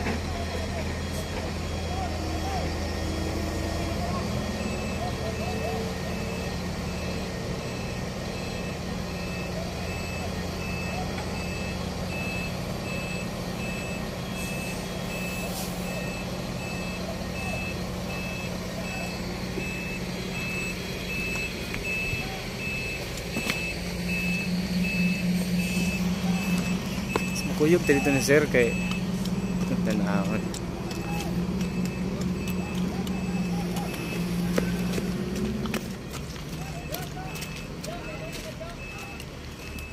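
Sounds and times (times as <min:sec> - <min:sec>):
reverse warning alarm beeping: 0:00.0 - 0:35.5, 0:36.2 - 0:39.9
diesel engine running: 0:00.0 - 0:39.9.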